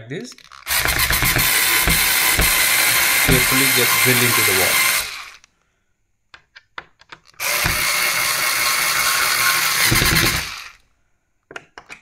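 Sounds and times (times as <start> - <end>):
cordless drill driving screw: 0.4 - 5.5, 7.4 - 10.8
drill ratcheting rattle: 0.4 - 5.5, 7.2 - 10.8.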